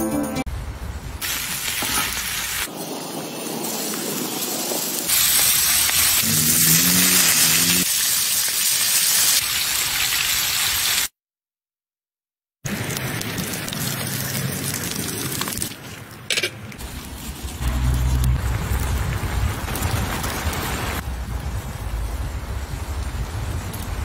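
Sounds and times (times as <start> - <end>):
pork sizzling on a griddle: 1.2 - 2.7, 4.7 - 11.1.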